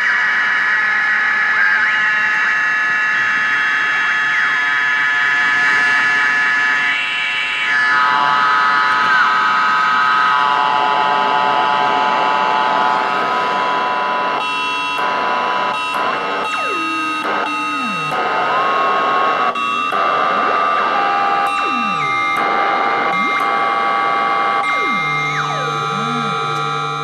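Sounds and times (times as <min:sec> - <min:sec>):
synthesizer tones sweeping: 0:16.4 - 0:18.5, 0:19.5 - 0:20.8, 0:21.5 - 0:27.0.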